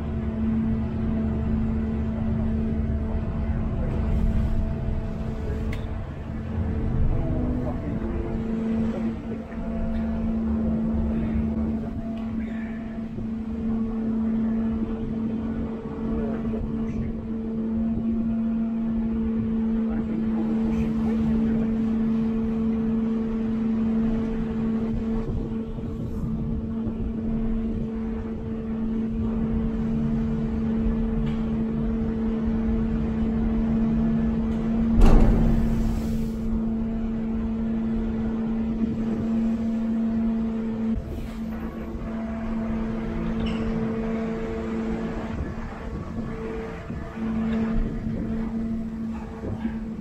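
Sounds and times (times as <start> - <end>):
ferry engine hum: 0.0 - 50.0
loud thump: 35.0 - 36.2.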